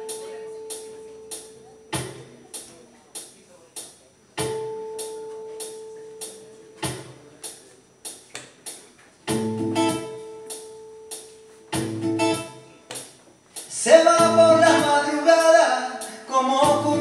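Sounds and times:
acoustic guitar: 0.0 - 2.4, 9.3 - 17.0
percussive beat: 0.1 - 5.1, 6.2 - 15.5, 16.6 - 17.0.

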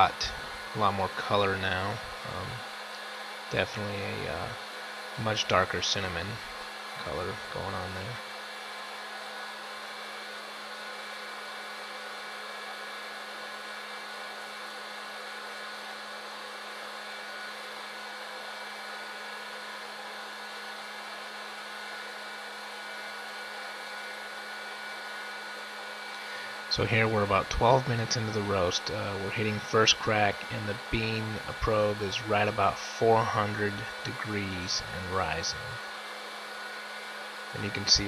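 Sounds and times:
low motor hum: 0.0 - 4.6, 5.2 - 8.2, 26.1 - 35.8
fan blowing hot air: 0.0 - 38.0.

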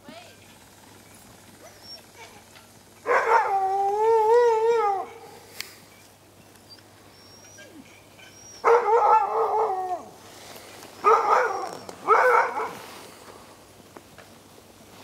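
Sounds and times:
huskies howling: 1.6 - 5.3, 7.3 - 10.2.

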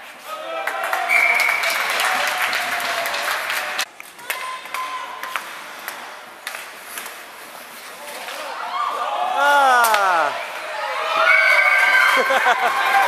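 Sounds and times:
crowd clapping and cheering: 0.5 - 3.9, 11.6 - 13.0
voices: 9.3 - 11.3.

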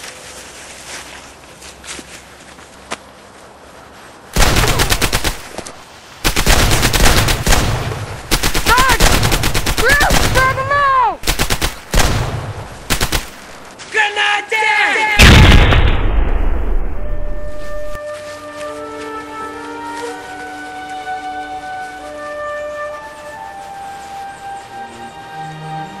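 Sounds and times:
machine-gun fire bursts: 4.4 - 5.5, 6.2 - 10.6, 11.2 - 13.4
man's drawn-out cries: 13.9 - 15.2.

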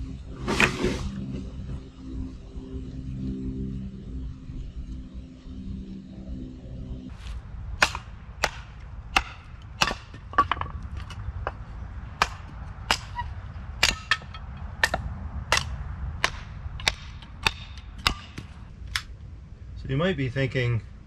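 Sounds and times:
low steady hum: 0.0 - 21.0
hatchet splitting kindling: 7.8 - 11.6, 12.2 - 15.0.

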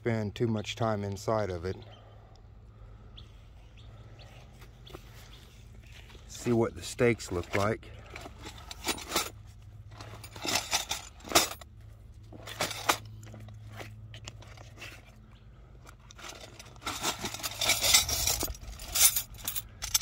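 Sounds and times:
metal tent stakes clinking: 5.8 - 15.2, 15.8 - 20.0.

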